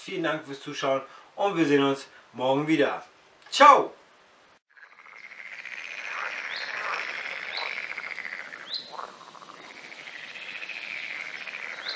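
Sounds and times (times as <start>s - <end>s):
fast-pulsing animal chorus: 4.8s - 11.9s
short rising chirps: 4.8s - 11.9s.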